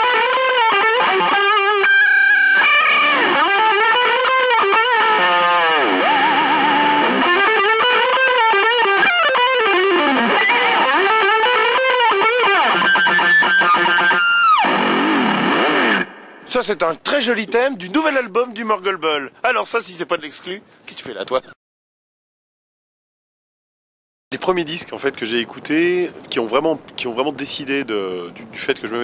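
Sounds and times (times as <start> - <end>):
distorted electric guitar melody: 0.0 - 16.5.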